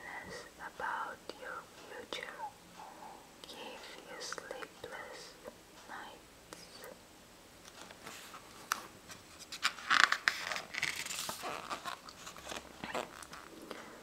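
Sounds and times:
book page turning: 7.7s - 13.6s.

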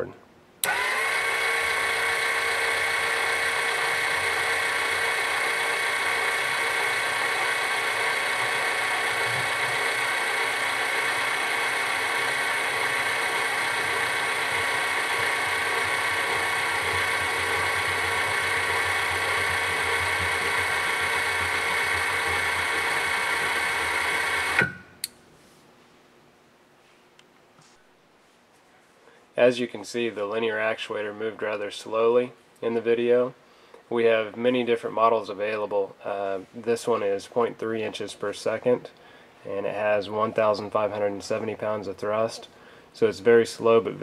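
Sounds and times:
actuator motor whining: 0.6s - 24.9s.

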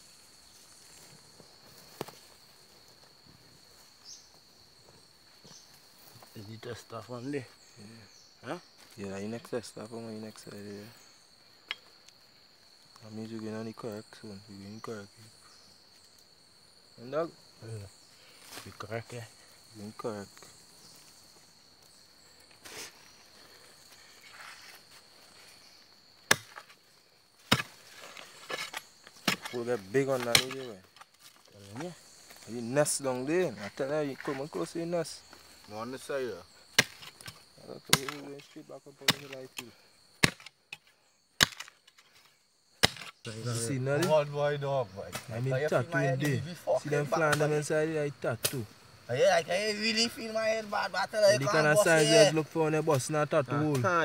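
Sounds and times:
night insects trilling: 0.0s - 54.0s
blade chopping into earth: 26.2s - 26.7s, 27.4s - 27.8s, 36.7s - 38.3s, 40.2s - 40.8s, 41.4s - 41.8s, 42.8s - 43.2s.

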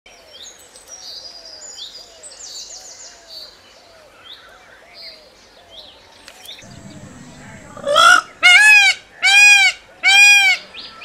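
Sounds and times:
birds chirping and whistling: 6.6s - 9.0s
low bird call: 6.6s - 9.7s.

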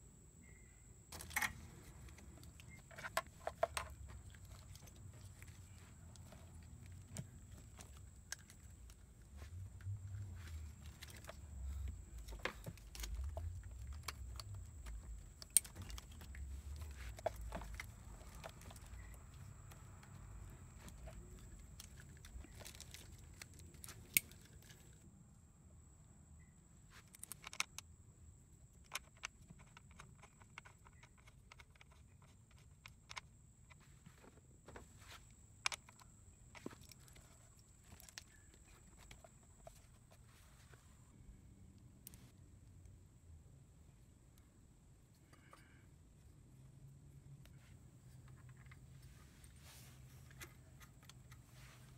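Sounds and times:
faint high-pitched whine: 0.0s - 51.9s
hand tools clicking and tapping: 1.1s - 24.7s, 28.9s - 33.8s.

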